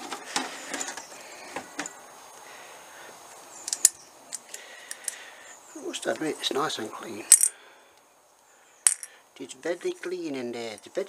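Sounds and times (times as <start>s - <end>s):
metal parts clicking and tapping: 3.7s - 5.2s, 8.9s - 9.1s.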